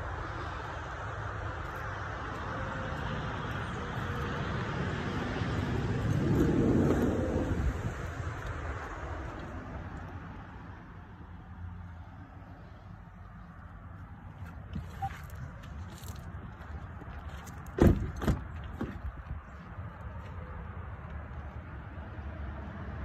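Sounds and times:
road traffic noise: 0.0 - 23.0
vehicle passing: 1.9 - 10.9.

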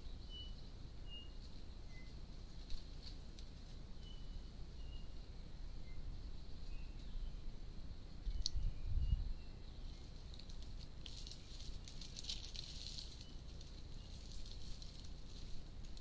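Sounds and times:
dry leaves crackling and rustling: 1.4 - 4.1, 9.8 - 16.0.

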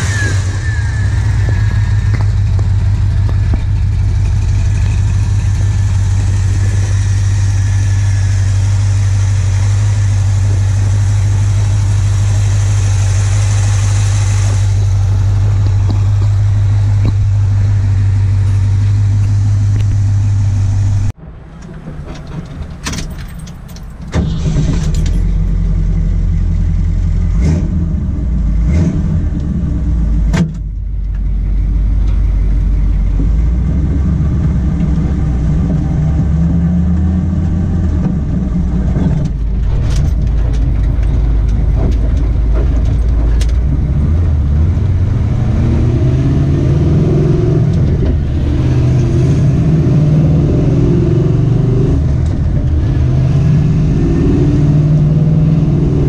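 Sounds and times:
loud engine running: 0.0 - 21.2.

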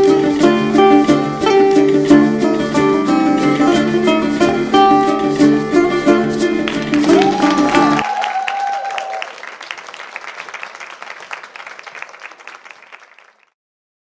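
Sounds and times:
dance music with plucked strings: 0.0 - 8.0
audience clapping: 6.6 - 13.6.

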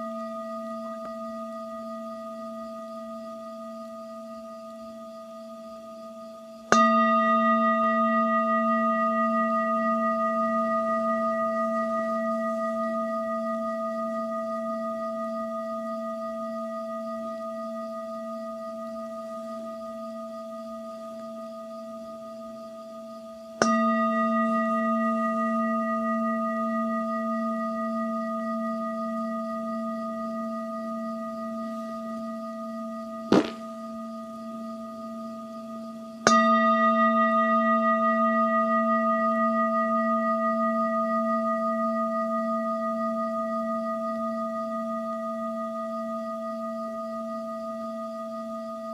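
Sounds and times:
singing bowl ringing: 6.7 - 17.4
sharp knock: 33.3 - 33.7.

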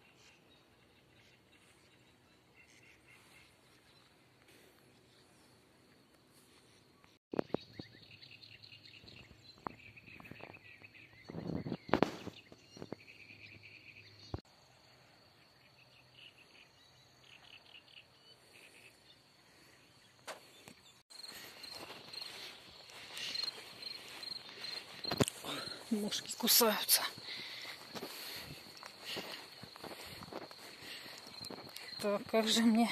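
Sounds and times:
small birds twittering: 0.0 - 14.4, 15.4 - 32.9
high-pitched insect trill: 21.1 - 32.9.

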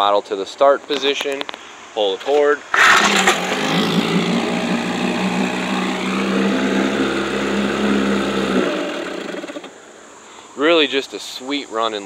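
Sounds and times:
outboard motor running: 2.7 - 9.9.

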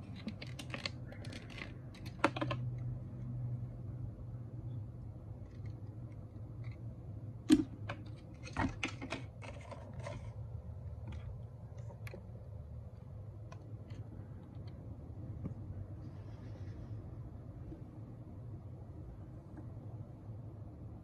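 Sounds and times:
low steady hum: 0.0 - 21.0.

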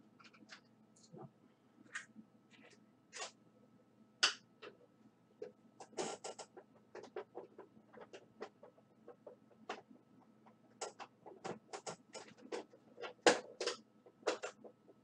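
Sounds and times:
small parts clicking and tapping: 5.4 - 15.0.

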